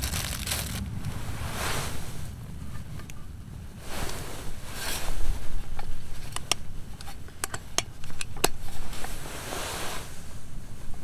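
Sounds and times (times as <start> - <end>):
soft rustling: 0.0 - 3.1, 8.6 - 11.0
low wind rumble: 0.0 - 11.0.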